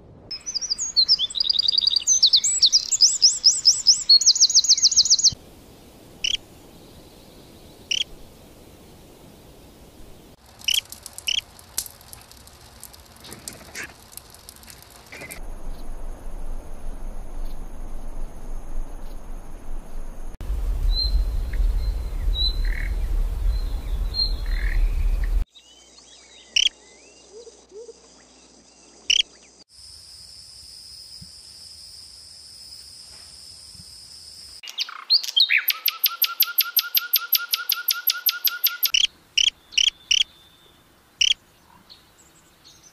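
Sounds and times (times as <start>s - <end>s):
small birds chirping: 0.3s - 5.4s, 6.2s - 11.4s, 20.4s - 29.6s, 34.6s - 42.9s
low rumble: 15.4s - 25.5s
steady high whine: 15.4s - 25.5s
fast bird trill: 34.8s - 40.3s.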